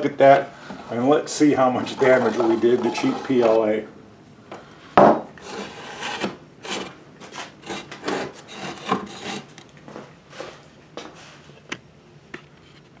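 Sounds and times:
wooden post scraping on board: 0.6 - 3.6, 5.4 - 9.6.

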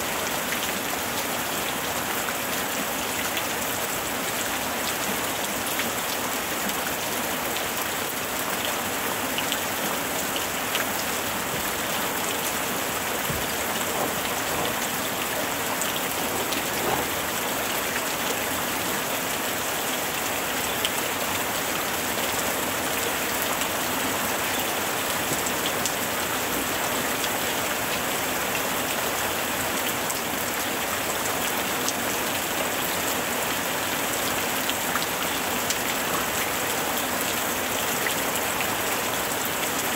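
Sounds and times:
steady rain hissing: 0.0 - 39.9
raindrops ticking: 13.2 - 17.8.

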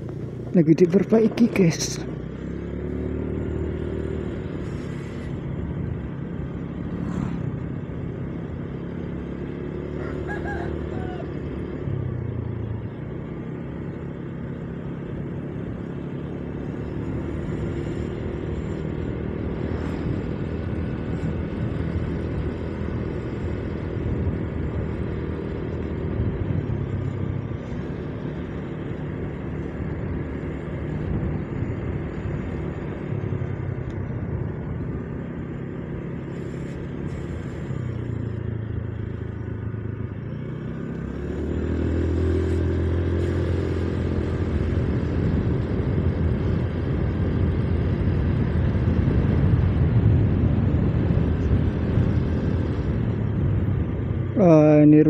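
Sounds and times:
motorcycle engine running: 0.0 - 55.0
road and wind noise: 0.0 - 55.0.

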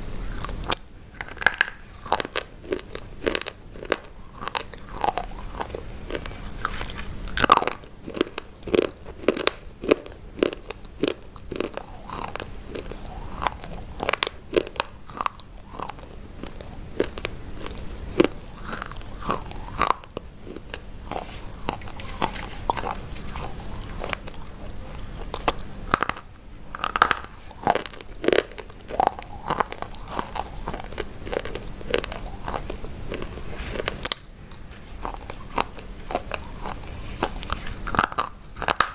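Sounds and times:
chalk sticks being chewed: 0.1 - 38.9.

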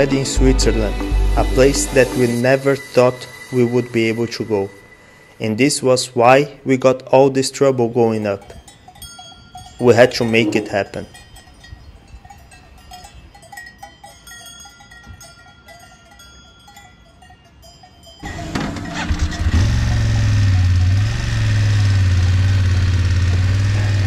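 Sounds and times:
faint cowbells clinking: 7.6 - 20.3
motorcycle engine running: 18.2 - 24.0.

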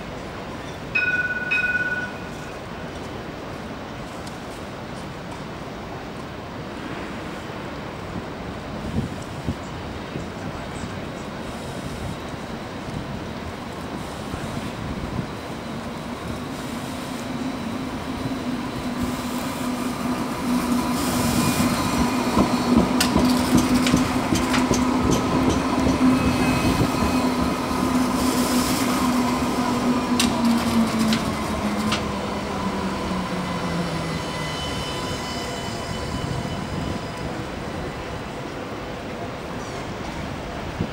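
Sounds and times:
tram rolling noise: 0.0 - 40.9
tram traction drive hum: 11.9 - 40.9.

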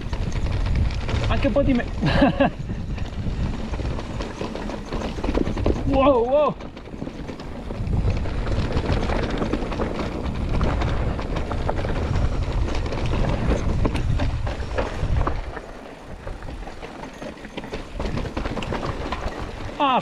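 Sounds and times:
wind rumble on microphone: 0.0 - 19.9
bike rattling over rocky trail: 0.0 - 20.0.

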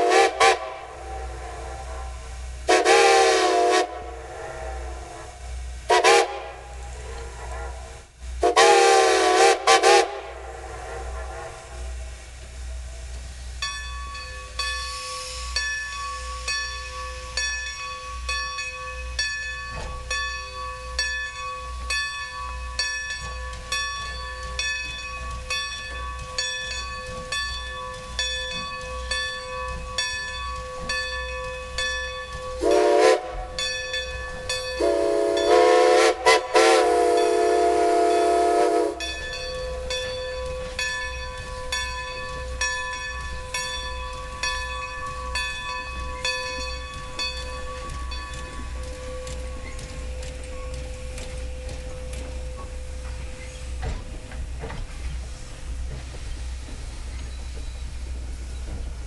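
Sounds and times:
steam whistle blasts: 0.0 - 5.3, 5.9 - 6.9, 8.4 - 11.9, 32.6 - 33.5, 34.8 - 39.1.

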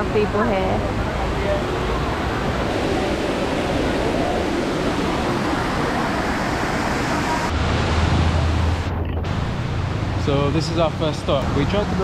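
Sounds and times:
low rumble: 0.0 - 12.0
water rushing over rocks: 1.9 - 10.2.

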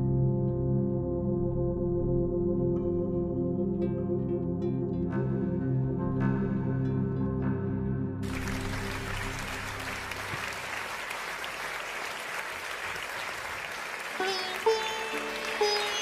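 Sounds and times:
crowd applauding: 8.2 - 16.0
plucked-string notes: 14.2 - 16.0.

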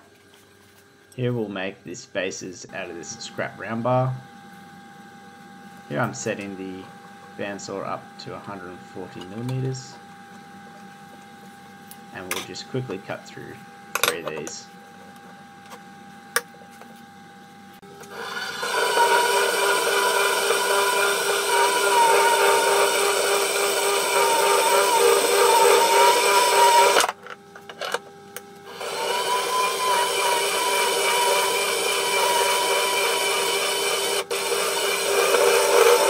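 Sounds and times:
band saw cutting metal: 18.0 - 27.1, 28.7 - 36.0.

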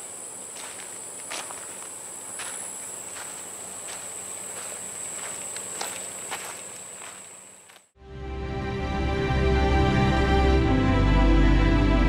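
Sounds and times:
footsteps on gravel: 0.0 - 8.0.

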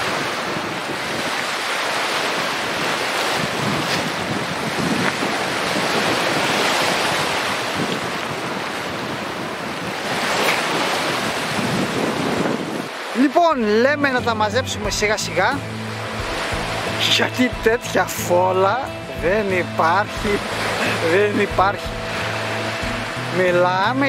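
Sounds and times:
wind buffeting microphone: 0.0 - 13.2
surf washing onto pebbly shore: 0.0 - 13.5, 15.0 - 24.0.

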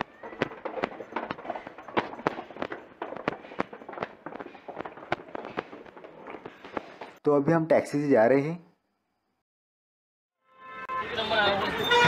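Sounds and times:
footsteps down a staircase: 0.0 - 7.2.

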